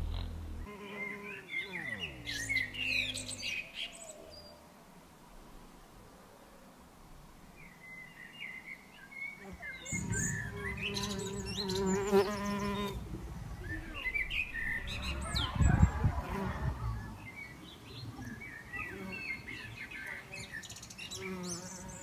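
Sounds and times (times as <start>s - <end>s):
bee buzzing: 0.0s - 3.4s, 9.4s - 17.1s, 21.1s - 22.0s
small birds chirping: 0.0s - 4.6s, 7.5s - 22.0s.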